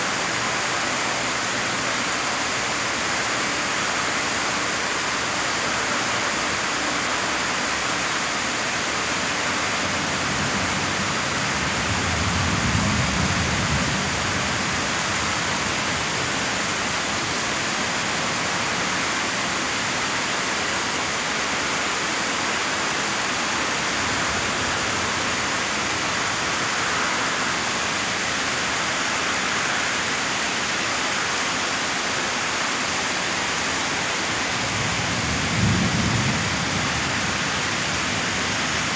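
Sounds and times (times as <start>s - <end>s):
rain pouring: 0.0s - 38.9s.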